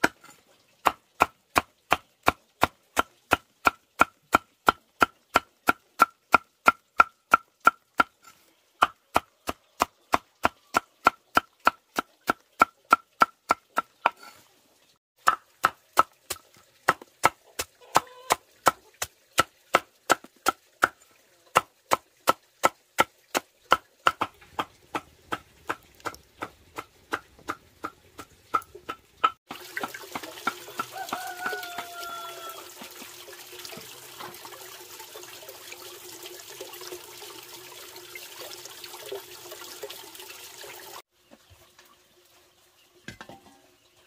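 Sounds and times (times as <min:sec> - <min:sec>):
machete chopping on wooden board: 0:23.7 - 0:27.6
water pouring into clay jar: 0:29.5 - 0:41.1.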